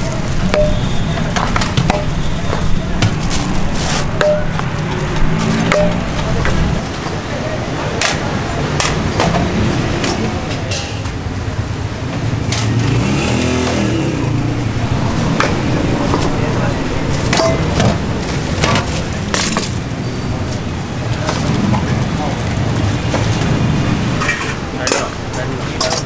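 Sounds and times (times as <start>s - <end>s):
traffic rumble: 0.0s - 26.0s
vehicle engine passing: 2.3s - 7.6s, 11.8s - 17.3s.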